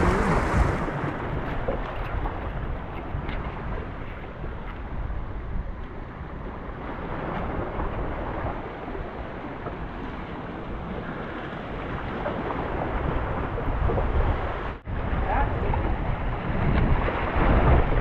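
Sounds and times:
waves washing against rocks: 0.0 - 3.4
wind buffeting microphone: 0.0 - 18.0.

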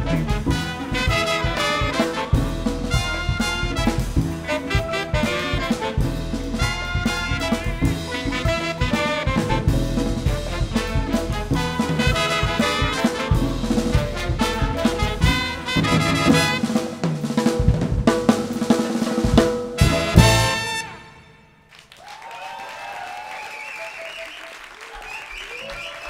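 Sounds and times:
drum kit and congas: 0.0 - 21.3
jazz band brass playing: 0.0 - 21.7
audience applause with cheers: 21.7 - 26.0.

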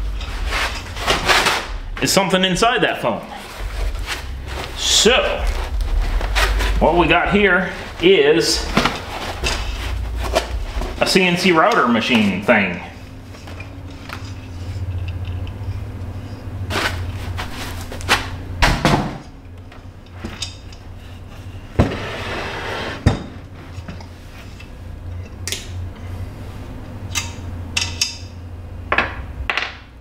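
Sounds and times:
steady low hum: 0.0 - 30.0
foam packing rustling: 3.3 - 12.4.

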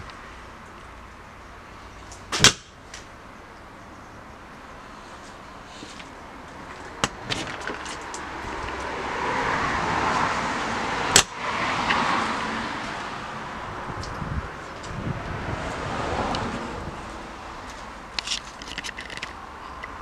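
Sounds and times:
rushing noise: 4.6 - 19.9.

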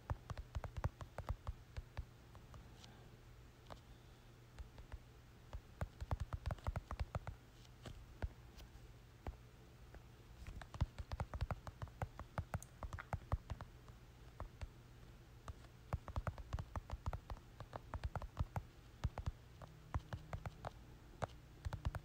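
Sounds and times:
typing taps on phone touchscreen: 0.1 - 2.1, 4.6 - 7.4, 10.5 - 13.7, 15.5 - 22.0.

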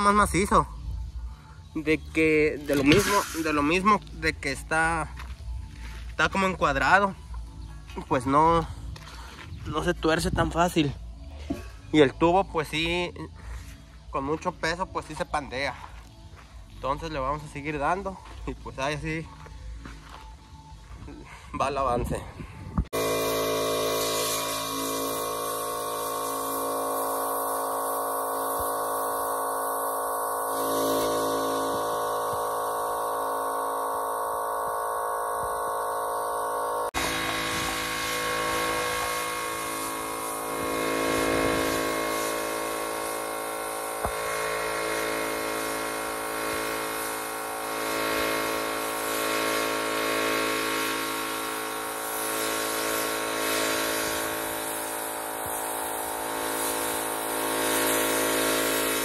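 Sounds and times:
air compressor humming: 0.0 - 59.0
spray gun hissing: 2.2 - 3.9, 23.0 - 59.0.

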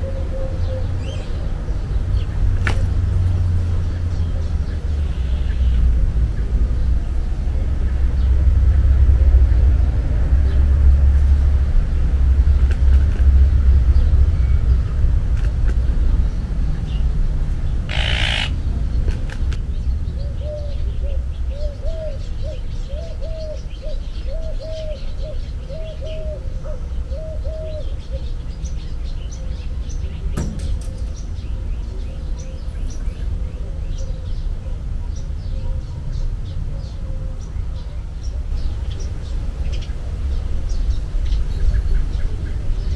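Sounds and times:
repeated bird call notes: 17.7 - 19.5
bird chirps: 17.9 - 18.6.

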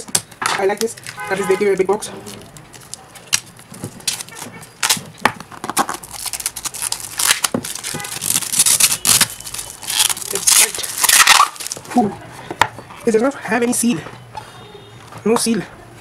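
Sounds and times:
plastic wrapping crinkling: 0.7 - 12.0.

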